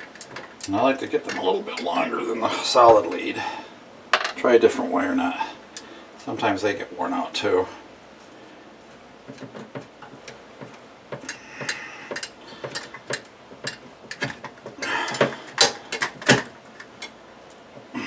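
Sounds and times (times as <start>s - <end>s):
small clicks and scrapes of wiring: 9.3s - 14.6s.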